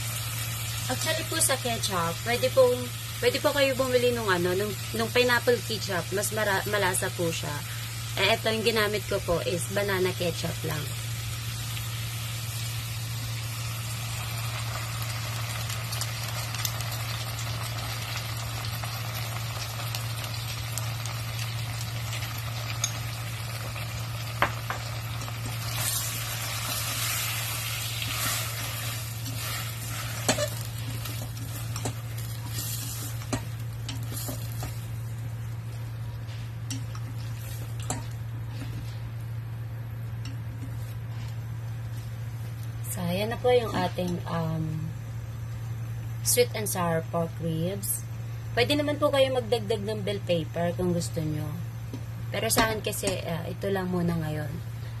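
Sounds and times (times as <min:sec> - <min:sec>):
meat sizzling in a pan: 0:00.0 - 0:35.3
steady low hum: 0:00.0 - 0:55.0.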